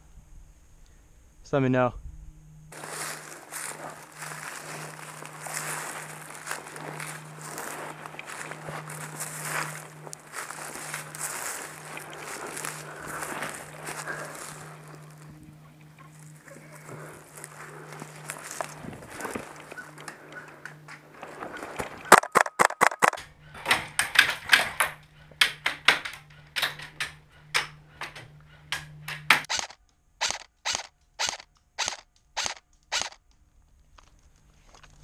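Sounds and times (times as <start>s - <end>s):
rustling through brush: 2.7s - 22.3s
airsoft rifle shots: 22.1s - 23.2s, 29.3s - 33.2s.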